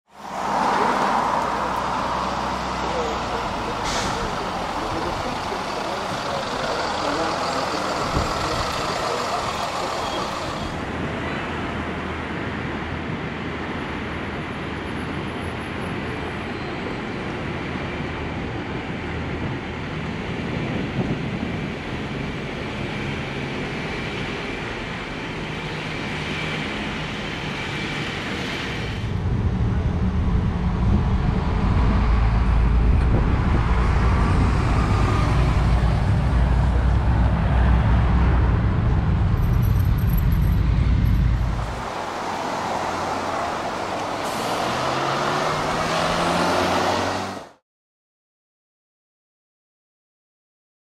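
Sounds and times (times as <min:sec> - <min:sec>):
bus engines running: 0:00.1 - 0:47.6
passing road traffic: 0:00.1 - 0:47.6
deep engine rumble: 0:00.8 - 0:11.0, 0:28.8 - 0:46.2.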